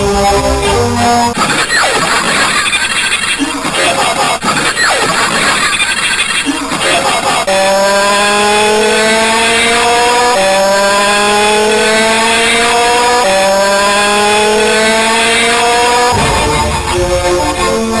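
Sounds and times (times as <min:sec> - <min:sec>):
buzzy electronic rising tone: 0:07.8 - 0:18.0.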